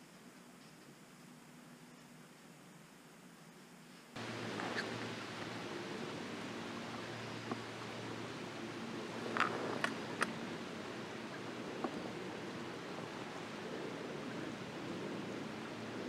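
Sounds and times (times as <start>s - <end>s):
outdoor background hiss: 0.0s - 16.0s
faint sharp clicks: 9.3s - 10.4s.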